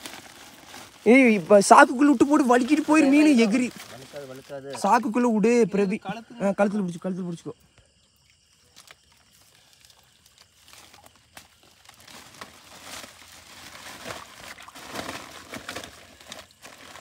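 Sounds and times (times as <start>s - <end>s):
plastic sack crinkling: 0.0s - 5.5s, 10.6s - 17.0s
splashing in shallow water: 8.1s - 17.0s.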